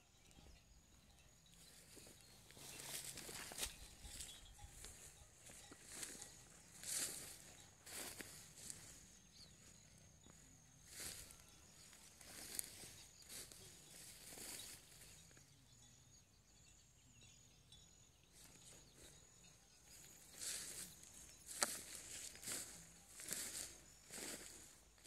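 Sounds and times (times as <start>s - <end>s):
footsteps through dry grass: 1.8s - 15.2s, 19.9s - 25.0s.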